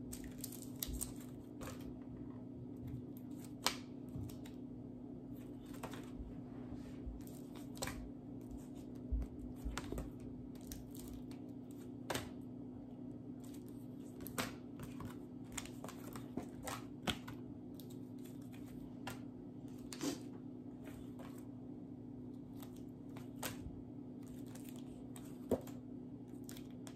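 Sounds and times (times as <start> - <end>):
cardboard cards clicking and rustling: 0.0 - 2.0, 5.4 - 6.2, 13.4 - 21.5, 22.5 - 26.9
steady low hum: 0.0 - 26.9.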